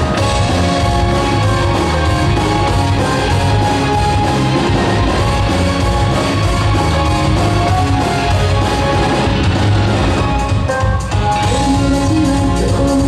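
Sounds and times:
loud rock music: 0.0 - 13.0.

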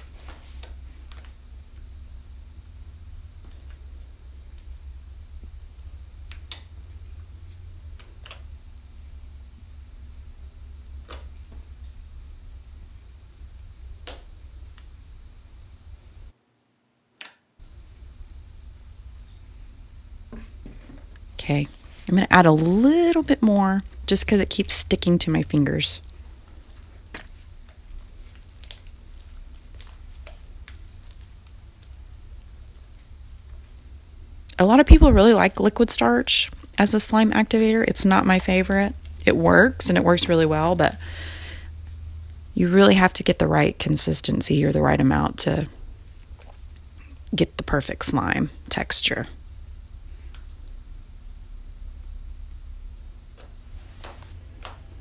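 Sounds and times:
steady low hum: 0.0 - 55.0
slime squelching: 24.0 - 33.9.

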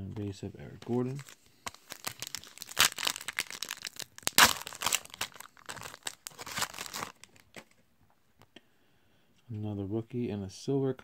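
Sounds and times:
foil wrapper tearing and crinkling: 1.1 - 7.6.

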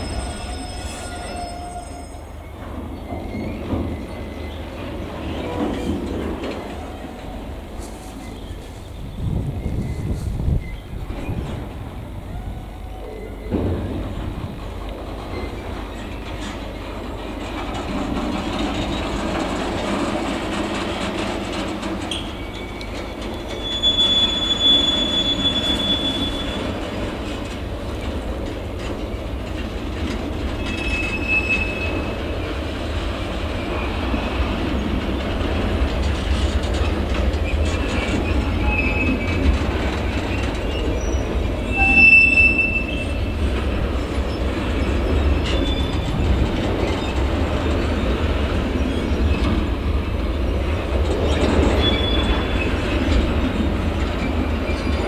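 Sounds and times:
high-pitched wheel squeals: 0.0 - 4.6, 22.1 - 26.8, 30.6 - 32.2, 40.3 - 43.4, 44.3 - 46.2, 51.3 - 52.8
freight wagon wheels rumbling: 2.6 - 55.0.

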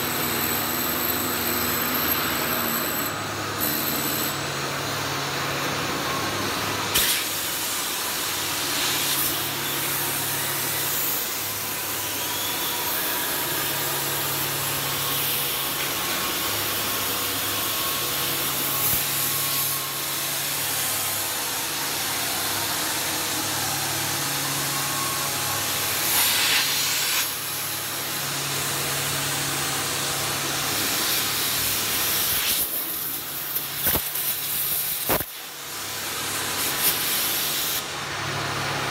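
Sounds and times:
arc welding hiss and crackle: 0.0 - 5.7, 6.5 - 38.2.

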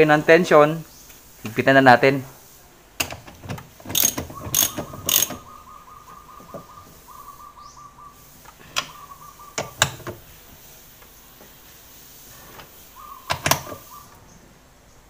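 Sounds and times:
sharp metal clicks: 3.0 - 5.5
ratchet wrench clicking: 3.9 - 5.4.

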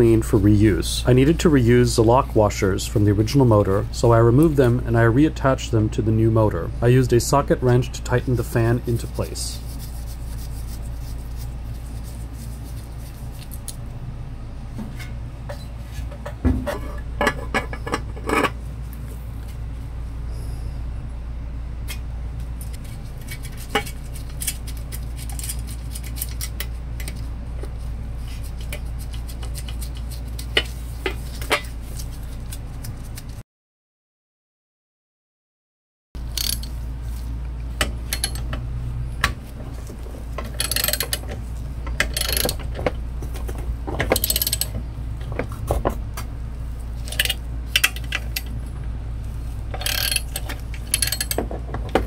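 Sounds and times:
steady low hum: 0.0 - 33.4, 36.2 - 52.0
wrench and fasteners clinking: 36.3 - 36.7, 38.1 - 38.5, 40.5 - 41.3, 42.0 - 42.6, 44.1 - 44.7, 49.8 - 51.4.

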